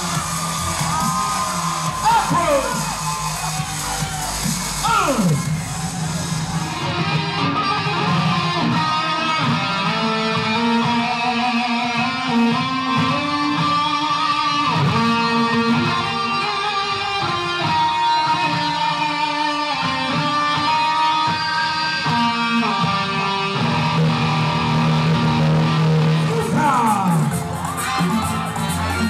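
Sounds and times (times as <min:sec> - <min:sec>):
backing music: 0:00.0 - 0:29.0
solo electric guitar: 0:06.7 - 0:26.6.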